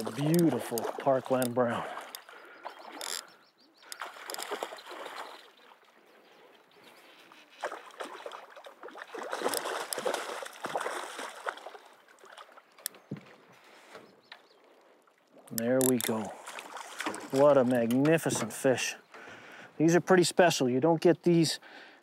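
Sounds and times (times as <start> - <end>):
fish splashing in water: 3.9 - 5.8, 7.6 - 12.8, 16.4 - 17.5.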